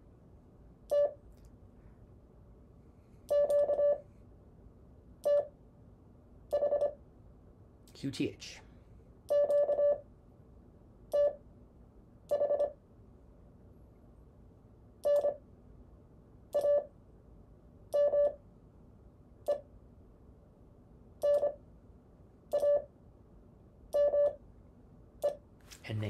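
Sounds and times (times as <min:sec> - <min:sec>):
morse code beeps: 0:03.3 - 0:04.0, 0:06.5 - 0:07.0, 0:09.3 - 0:10.0, 0:11.1 - 0:11.4, 0:12.3 - 0:12.8, 0:15.0 - 0:15.4, 0:16.6 - 0:16.9, 0:18.0 - 0:18.4, 0:21.2 - 0:21.6, 0:22.5 - 0:22.9, 0:24.0 - 0:24.4.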